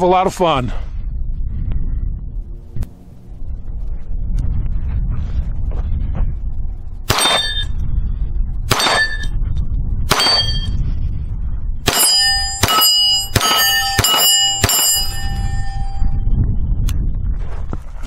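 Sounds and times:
steel target ringing: 7.1s - 7.8s, 8.7s - 9.4s, 10.1s - 10.8s, 11.8s - 16.2s
pistol shots: 8.7s - 9.2s, 10.1s - 10.6s, 11.9s - 14.9s.

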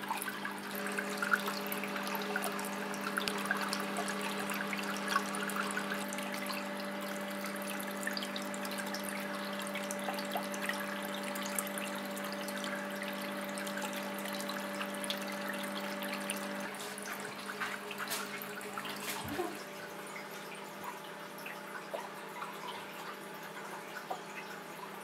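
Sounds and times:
small waterfall trickling: 0.0s - 25.0s
water pump hum: 0.0s - 25.0s.

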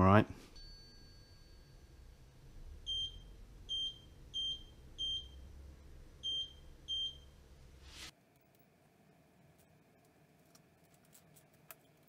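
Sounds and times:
short electronic beeps: 2.9s - 5.4s, 6.2s - 7.4s.

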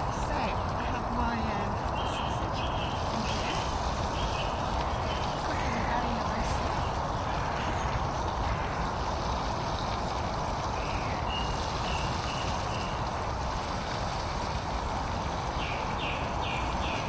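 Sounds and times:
camping stove burner hissing: 0.0s - 17.0s.

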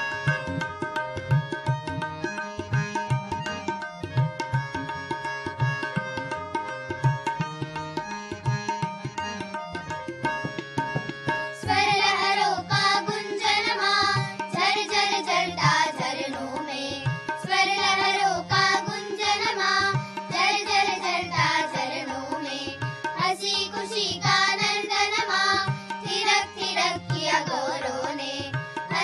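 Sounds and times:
held instrumental notes: 0.0s - 16.3s
children singing in unison: 11.6s - 29.0s.

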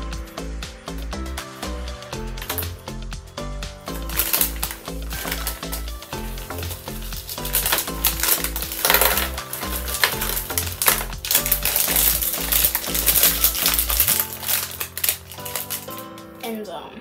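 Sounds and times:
background music with bass line: 0.0s - 16.5s
foil bag crinkling: 2.4s - 2.7s, 3.9s - 16.6s
chips clattering onto plate: 4.0s - 16.2s.

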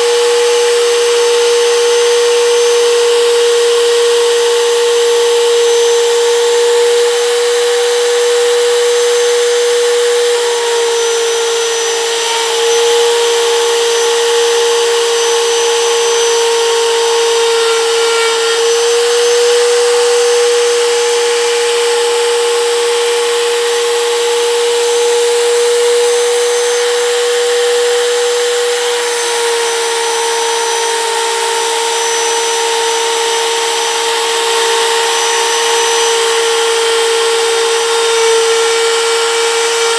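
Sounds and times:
router whining while cutting wood: 0.0s - 39.9s.

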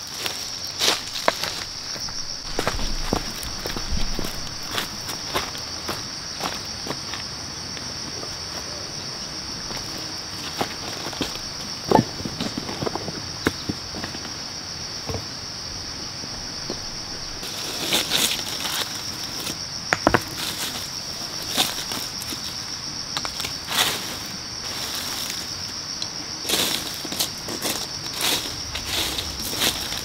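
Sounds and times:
insects droning: 0.0s - 30.0s
stones and brick knocking together: 19.9s - 20.4s.

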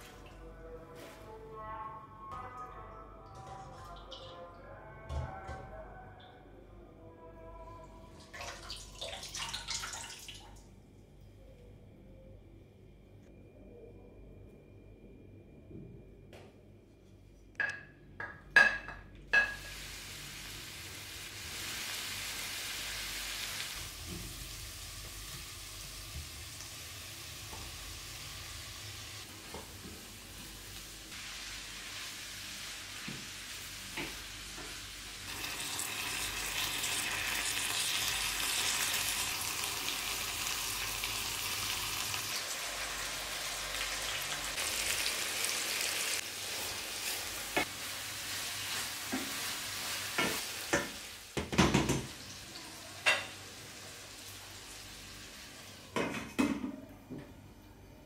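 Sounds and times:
food sizzling in hot oil: 19.4s - 29.3s, 30.1s - 51.4s.

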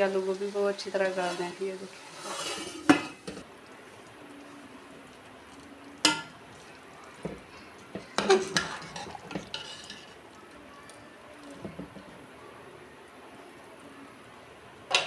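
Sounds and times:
ladle scraping a metal pot: 1.0s - 3.4s, 8.2s - 10.2s.

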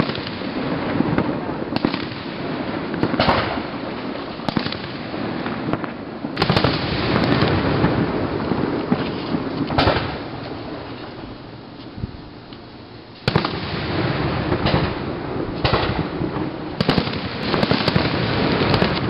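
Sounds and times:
firework bangs: 0.0s - 12.2s, 13.2s - 19.0s
firework crackle: 0.0s - 19.0s.

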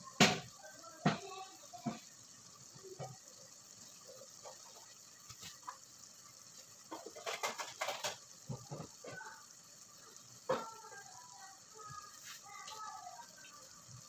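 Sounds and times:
utensil scraping metal pot: 6.8s - 9.3s.

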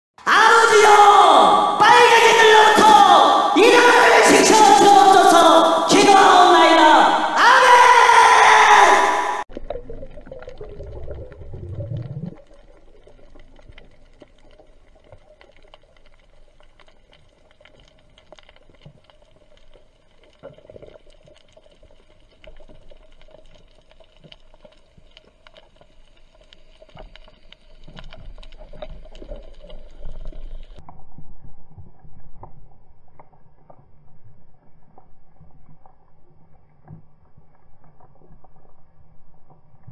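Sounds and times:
low underwater rumble: 9.5s - 15.2s, 27.4s - 39.9s
small clicks and crackles: 9.5s - 39.9s.

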